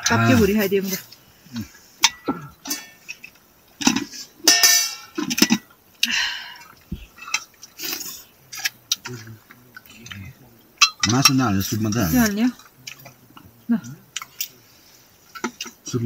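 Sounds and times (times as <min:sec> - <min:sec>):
metal plates and spoons clinking: 0:02.0 - 0:05.7, 0:06.4 - 0:09.3, 0:10.8 - 0:13.2.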